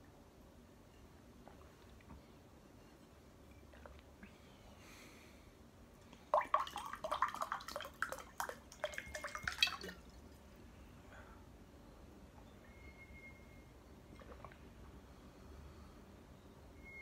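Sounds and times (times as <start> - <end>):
water pouring into glass: 6.4 - 10.2.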